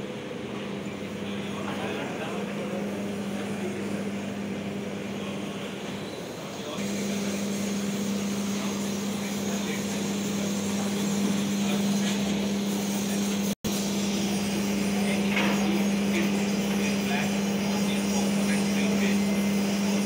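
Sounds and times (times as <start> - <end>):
machine hum: 0.0 - 20.0
ventilation drone: 0.0 - 20.0.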